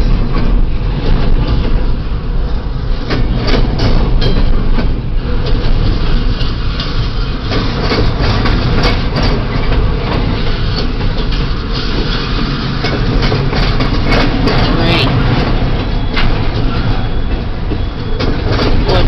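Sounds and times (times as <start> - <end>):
train clicks and clanks: 0.0 - 19.0
train rumbling past: 0.0 - 19.0.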